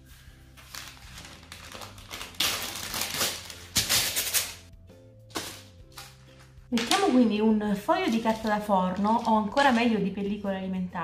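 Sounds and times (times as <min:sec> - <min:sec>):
soft background music: 0:00.0 - 0:11.0
baking paper tearing: 0:00.6 - 0:04.7.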